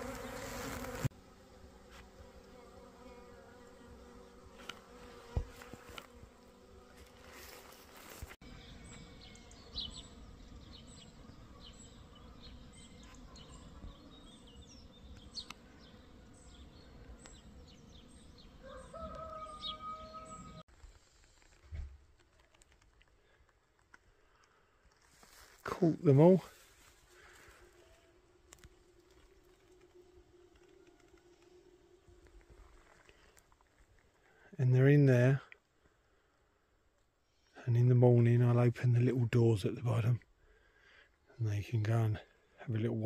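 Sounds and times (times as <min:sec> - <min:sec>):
bee swarm buzzing: 0:00.0 - 0:20.6, 0:27.0 - 0:33.1.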